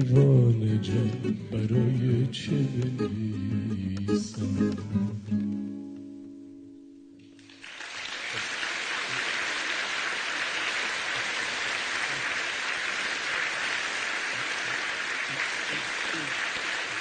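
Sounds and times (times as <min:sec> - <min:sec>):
acoustic guitar chord ringing: 0:00.1 - 0:07.4
audience applause: 0:07.4 - 0:17.0.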